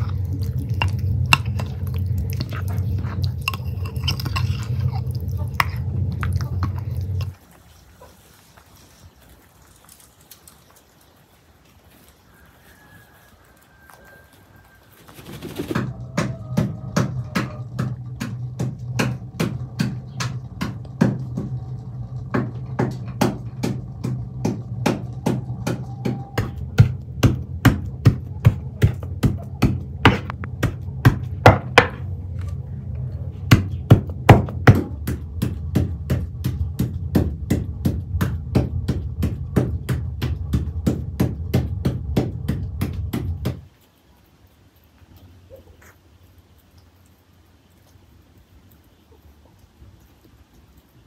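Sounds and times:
low hum: 0.0s - 48.8s
knife chopping on wooden board: 22.4s - 32.0s.

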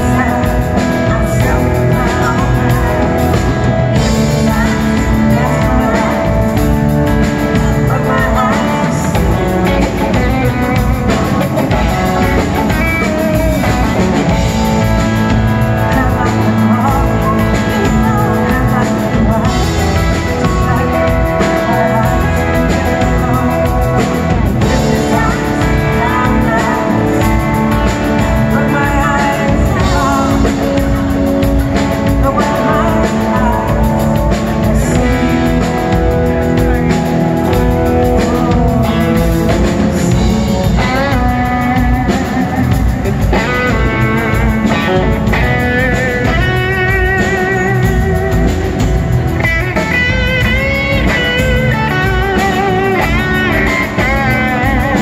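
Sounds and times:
drum kit: 0.0s - 55.0s
electric bass: 0.0s - 55.0s
electric guitar: 0.0s - 55.0s
woman singing: 0.0s - 55.0s.

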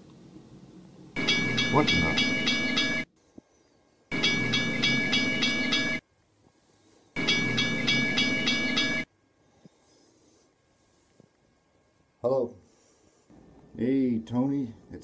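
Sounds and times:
phone ringtone pulsing tones: 1.2s - 3.1s, 4.1s - 6.0s, 7.2s - 9.1s.

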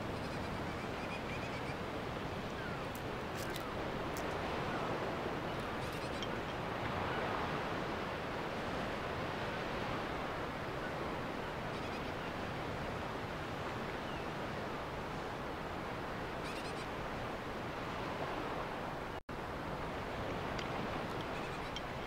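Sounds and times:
wind: 0.0s - 22.0s.

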